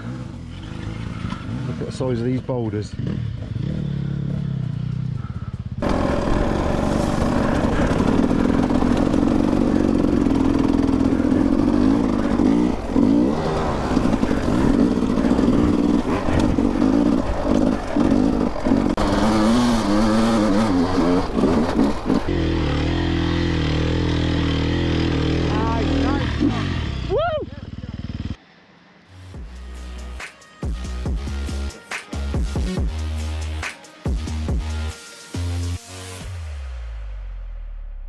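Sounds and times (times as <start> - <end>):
dirt bike engine revving: 0.0 - 28.4.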